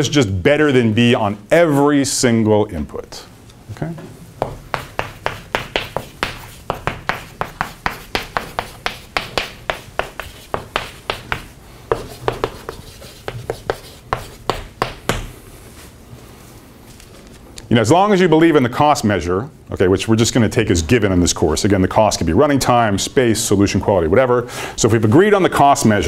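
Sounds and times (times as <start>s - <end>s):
chalk tapping and scratching: 4.4s - 15.4s.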